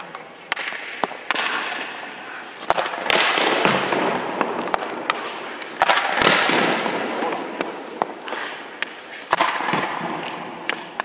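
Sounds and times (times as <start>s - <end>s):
skates scraping on ice: 0.0s - 11.0s
stick and puck clacks: 0.0s - 11.0s.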